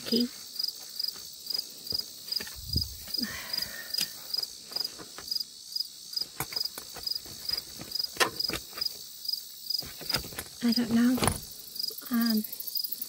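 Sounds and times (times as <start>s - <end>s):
insect chorus chirping: 0.0s - 13.0s
clicks and rustles of handling: 9.8s - 11.5s
dull thump: 9.8s - 11.5s.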